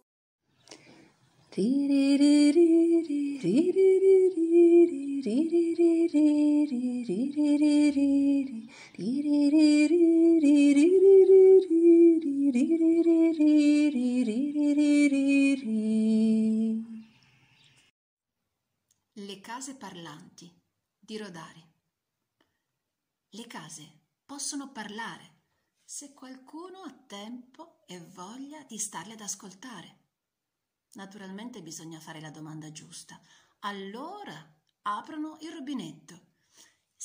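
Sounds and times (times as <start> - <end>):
woman singing a slow melody: 1.5 - 17.1.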